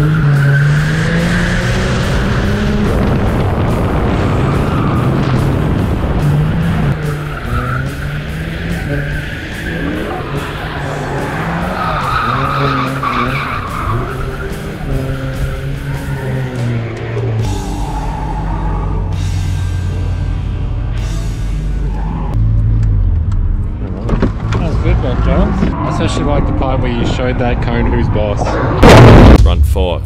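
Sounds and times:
engine revving: 0.0s - 29.4s
tyres screeching: 6.4s - 19.4s.

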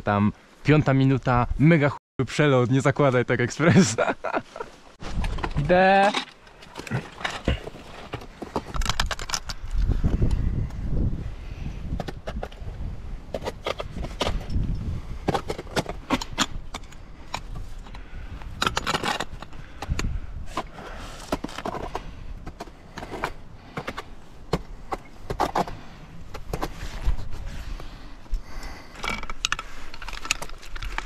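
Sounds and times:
climbing hardware clinking on rock: 5.1s - 10.3s, 13.3s - 27.2s, 28.7s - 31.0s.

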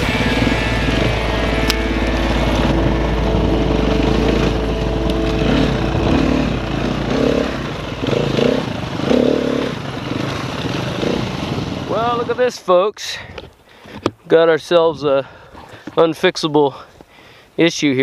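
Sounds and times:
dirt bike engine revving: 0.0s - 12.4s.

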